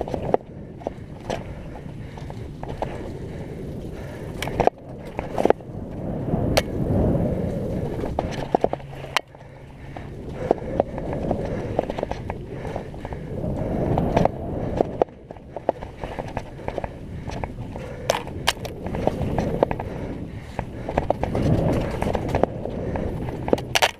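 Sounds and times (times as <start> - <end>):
bike clacking over bumps: 0.0 - 23.9
bike tyres rolling on dirt: 0.0 - 23.9.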